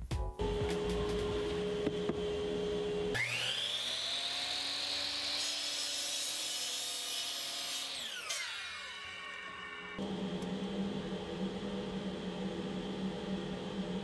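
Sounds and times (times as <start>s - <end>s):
miter saw motor whining: 1.4s - 6.0s, 7.8s - 10.5s
saw blade cutting wood: 3.1s - 10.0s
steady hum: 10.0s - 14.0s.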